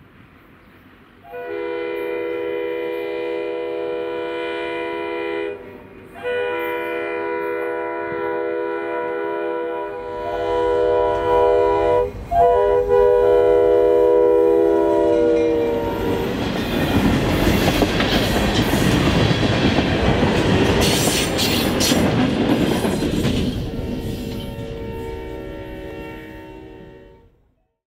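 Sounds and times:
locomotive horn blasts: 1.2s - 16.4s, 23.9s - 27.4s
rail-joint clicks: 15.4s - 24.7s.

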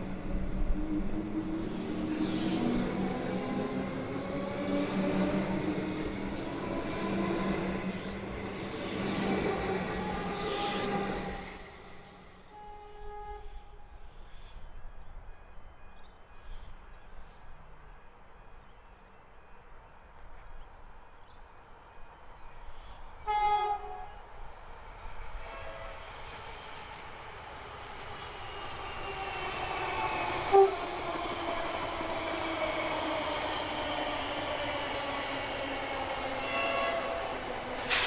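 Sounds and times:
electric train hum and rumble: 0.0s - 17.0s, 21.2s - 38.0s
train horn: 12.4s - 13.9s, 23.2s - 24.2s, 25.5s - 26.0s, 30.4s - 30.8s, 36.4s - 38.0s.

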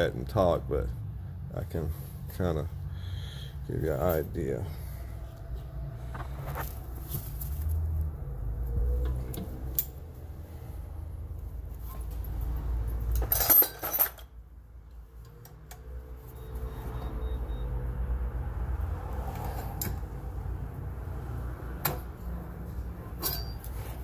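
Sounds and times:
metal clatter: 13.1s - 14.4s, 23.1s - 24.0s
steel tools clanking: 13.1s - 14.4s, 23.1s - 24.0s.

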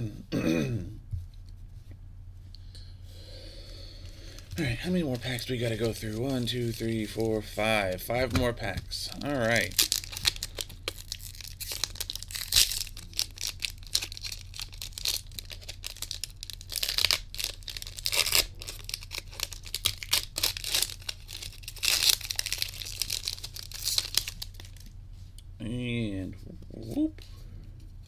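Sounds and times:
foil wrapper tearing and crinkling: 4.1s - 8.0s, 9.1s - 25.0s
loud foil rips: 9.3s - 24.9s.

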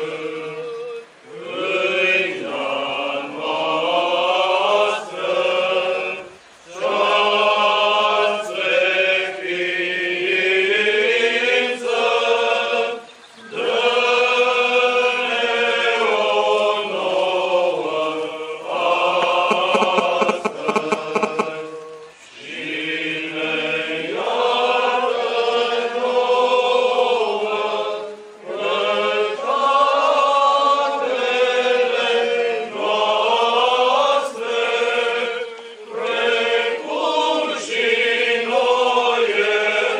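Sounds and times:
choir chanting: 0.0s - 39.9s.

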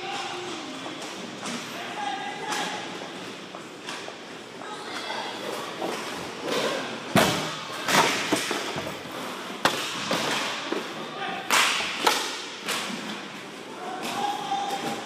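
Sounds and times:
players' voices: 0.0s - 15.0s
hockey sticks and puck clacking: 5.5s - 15.0s.

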